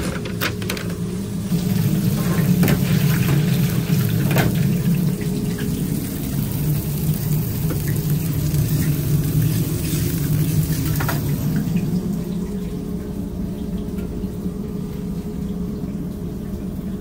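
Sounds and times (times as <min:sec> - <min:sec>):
extraction hood hum: 0:00.0 - 0:13.4
food frying hiss: 0:01.4 - 0:11.9.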